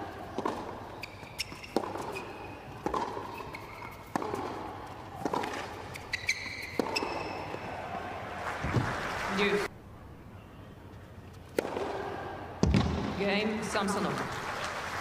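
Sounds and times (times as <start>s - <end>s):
shoes squeaking on court: 0.1s - 7.7s
tennis ball struck by rackets: 0.2s - 7.6s, 11.5s - 13.1s.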